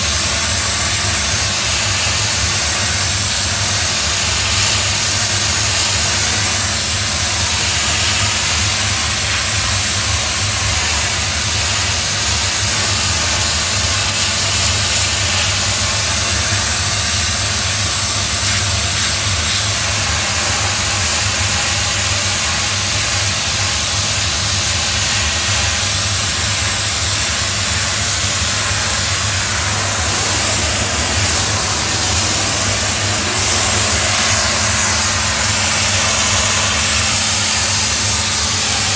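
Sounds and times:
steam cleaner jetting steam: 0:00.0 - 0:38.9
low engine hum: 0:27.4 - 0:36.5.

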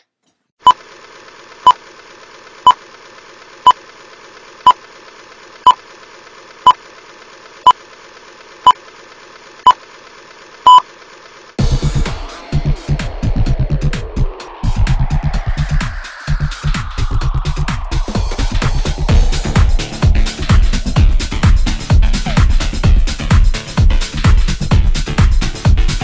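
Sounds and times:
music: 0:11.6 - 0:26.0.

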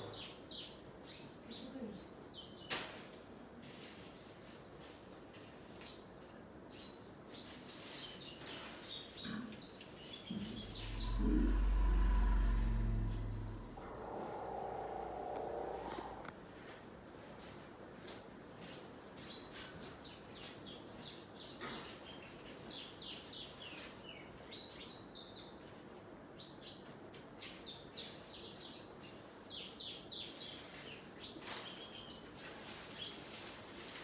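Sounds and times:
small birds chirping: 0:06.8 - 0:16.3.

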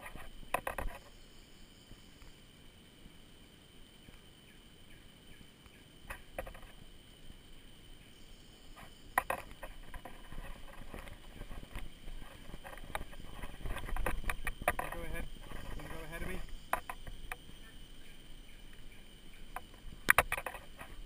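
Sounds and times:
unicycle clicks and knocks over bumps: 0:00.0 - 0:01.1, 0:09.1 - 0:17.6, 0:19.5 - 0:21.0.

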